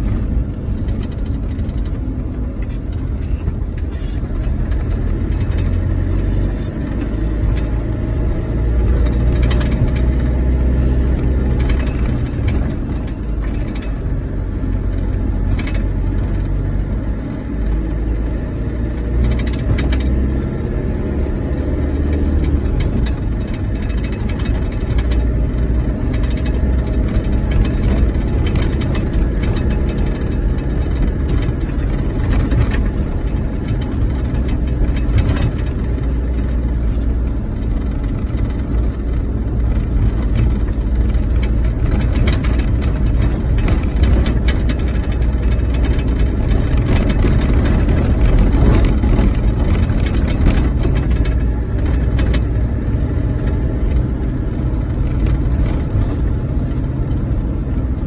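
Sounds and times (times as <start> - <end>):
car engine and tyre rumble: 0.0 - 58.0
knocks from road bumps: 21.9 - 52.7.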